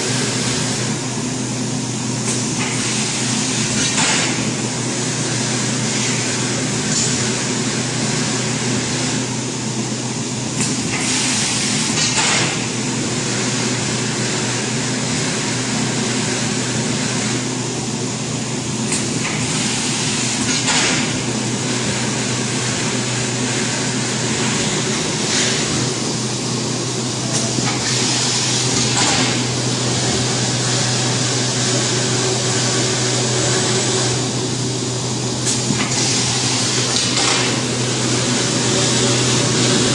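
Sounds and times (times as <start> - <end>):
foam laminating machine running: 0.0 - 39.9.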